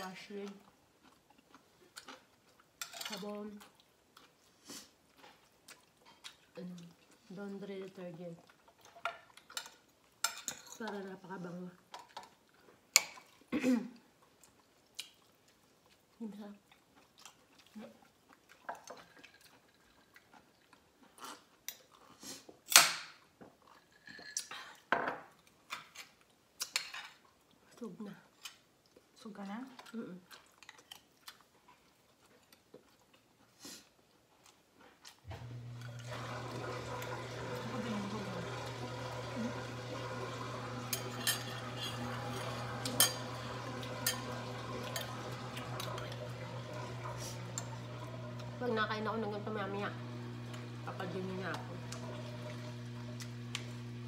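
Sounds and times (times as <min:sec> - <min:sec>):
person chewing: 0:00.6 - 0:02.8, 0:03.6 - 0:07.3, 0:14.2 - 0:23.9, 0:29.8 - 0:35.2.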